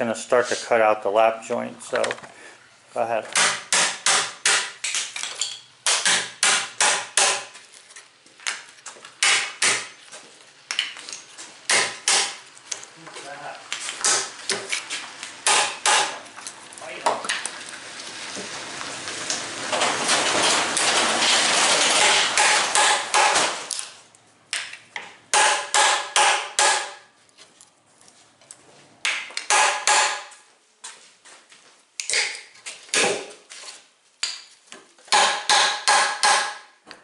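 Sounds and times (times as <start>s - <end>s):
hammer striking chisel: 3.3s - 5.0s, 5.8s - 7.6s, 9.2s - 10.0s, 11.7s - 12.4s, 15.4s - 16.2s, 22.0s - 23.5s, 25.3s - 27.0s, 29.1s - 30.3s, 35.1s - 36.7s
chisel working wood: 22.0s - 23.4s.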